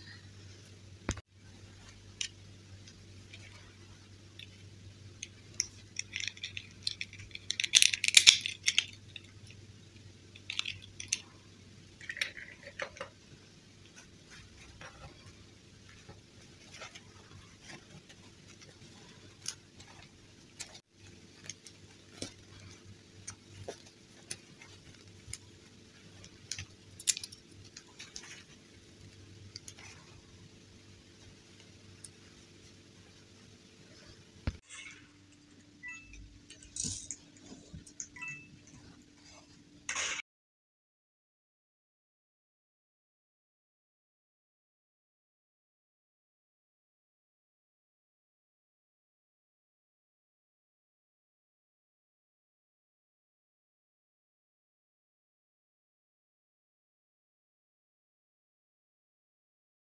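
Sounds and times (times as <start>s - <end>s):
faint steady hum: 0.0s - 40.1s
doll dress fabric rustling: 13.9s - 30.4s.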